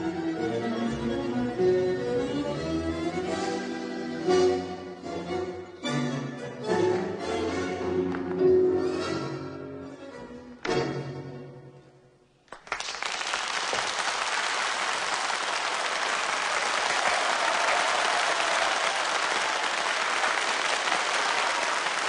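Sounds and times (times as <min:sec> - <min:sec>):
audience applauding: 0:12.5 - 0:22.0.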